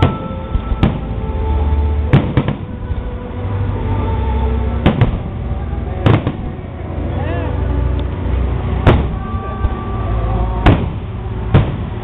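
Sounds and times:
music: 0:00.0 - 0:12.0.

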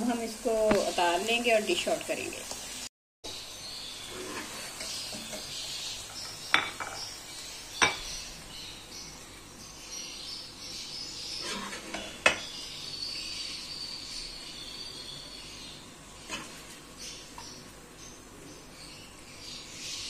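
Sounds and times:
metal spoon scraping a pan: 0:04.0 - 0:05.7, 0:11.3 - 0:12.5, 0:16.2 - 0:16.8.

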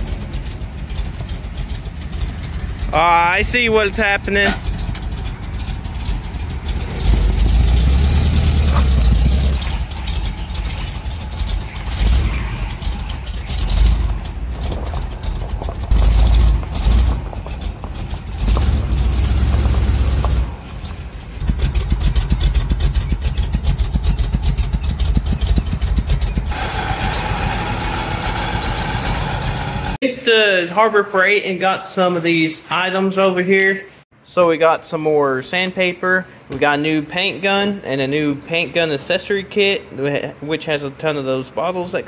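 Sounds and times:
vehicle engine rumbling: 0:00.0 - 0:32.7
fast even pulsing: 0:00.0 - 0:33.0.

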